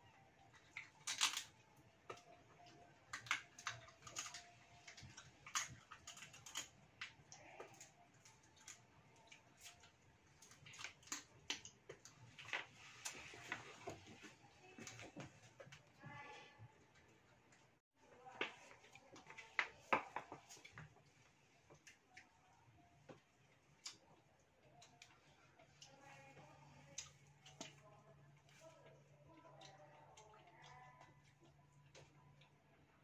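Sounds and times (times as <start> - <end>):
shells cracking and crunching: 0.8 - 1.6, 3.0 - 8.8.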